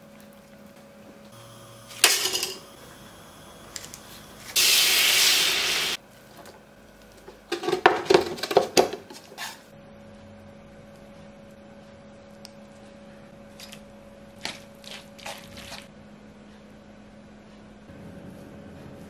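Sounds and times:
spaghetti sizzling in a frying pan: 0:04.0 - 0:06.0.

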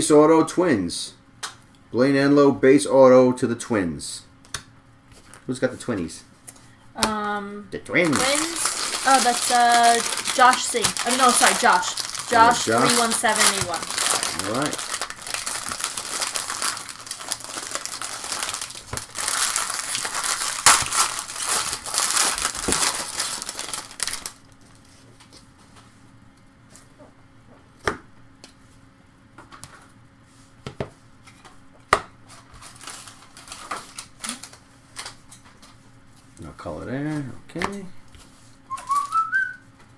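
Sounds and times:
cards rustling: 0:08.0 - 0:25.4
foil wrapper crinkling: 0:08.0 - 0:25.4, 0:32.4 - 0:35.6, 0:38.6 - 0:39.6.

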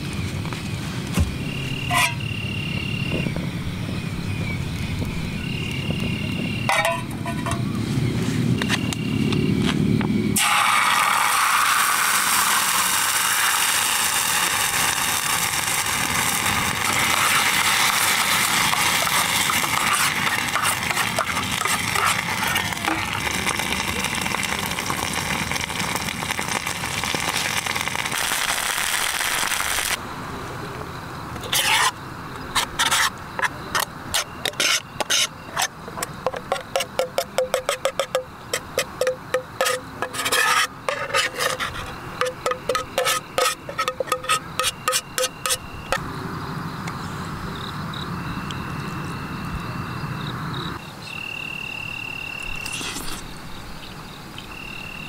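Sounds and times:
metal spoon scraping a pot: 0:01.9 - 0:02.2, 0:06.7 - 0:07.6, 0:18.7 - 0:23.1, 0:31.4 - 0:32.0, 0:32.6 - 0:45.6
sauce sizzling in a metal pot: 0:10.4 - 0:28.4, 0:36.5 - 0:45.6.

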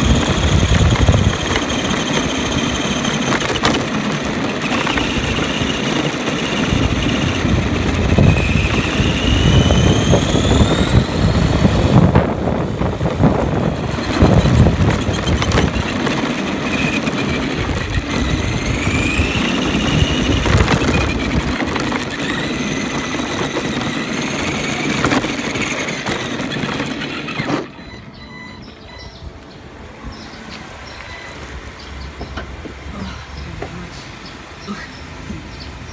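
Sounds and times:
tyres rumbling on concrete: 0:00.0 - 0:28.6
electric motor whining: 0:00.0 - 0:34.6.

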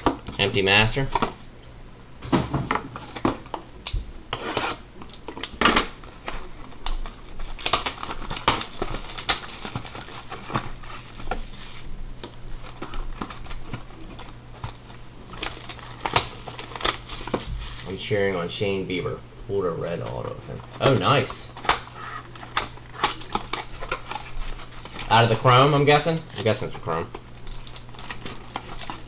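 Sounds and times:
plastic wrap crinkling: 0:05.1 - 0:18.1, 0:20.0 - 0:29.0.

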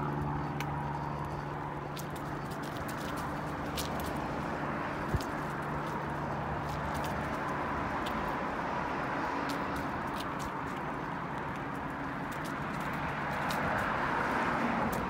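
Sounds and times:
bicycle rolling on asphalt: 0:00.0 - 0:15.0
light ticks: 0:00.1 - 0:08.5.

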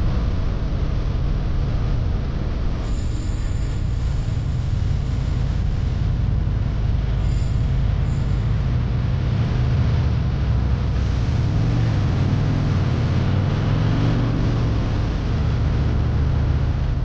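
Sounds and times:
wind and road noise: 0:00.0 - 0:17.0
motorcycle engine rumble: 0:04.0 - 0:17.0.

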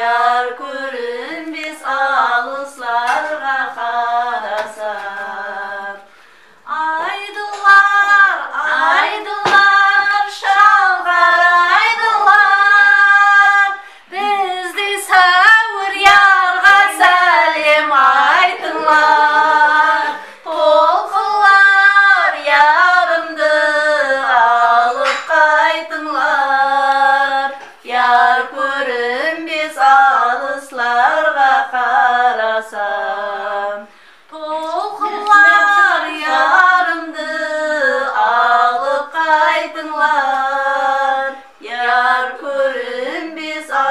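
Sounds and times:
woman singing unaccompanied: 0:00.0 - 0:43.9
singer breathing: 0:06.1 - 0:06.7, 0:13.8 - 0:14.1, 0:20.1 - 0:20.5, 0:33.9 - 0:34.3.

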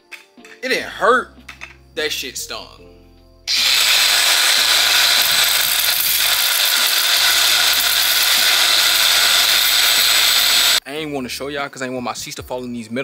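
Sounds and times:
angle grinder cutting steel: 0:03.5 - 0:10.8.

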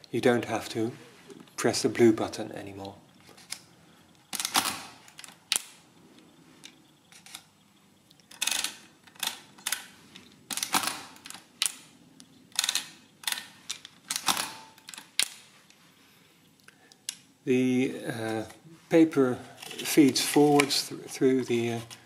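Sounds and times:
adding machine metal clicks: 0:12.5 - 0:15.4.

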